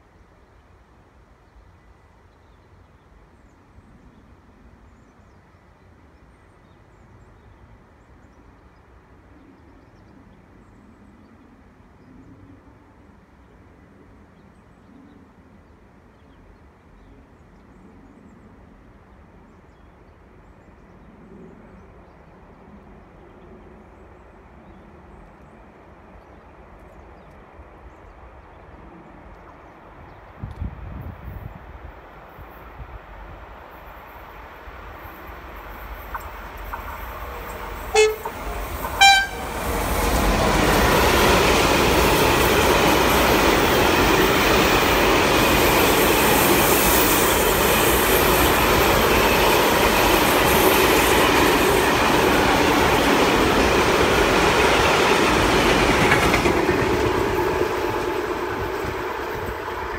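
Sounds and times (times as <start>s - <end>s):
wind buffeting microphone: 30.0s - 33.5s, 38.3s - 59.9s.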